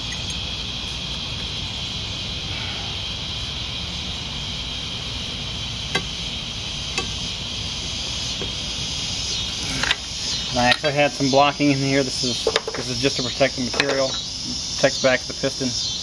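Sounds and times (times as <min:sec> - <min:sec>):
background hiss and hum: 0:00.0 - 0:16.0.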